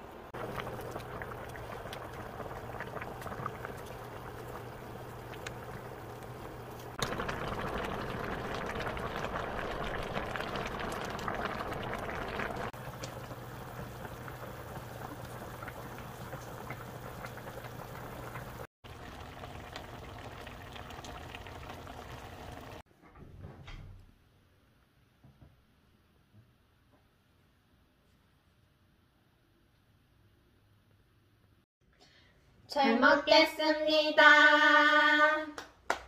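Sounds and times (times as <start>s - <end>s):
stew bubbling in a pan: 0.2s - 22.9s.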